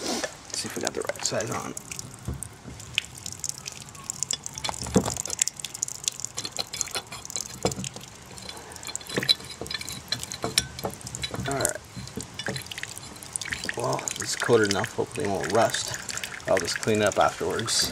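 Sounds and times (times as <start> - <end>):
water dripping and trickling: 0.5 - 17.9
pipe wrench clicks and knocks: 4.3 - 15.0.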